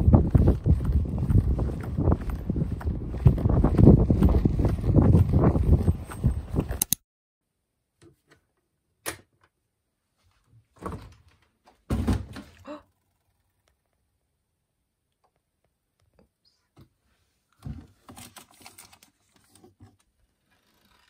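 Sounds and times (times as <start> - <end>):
footsteps on paved path: 0.0 - 6.8.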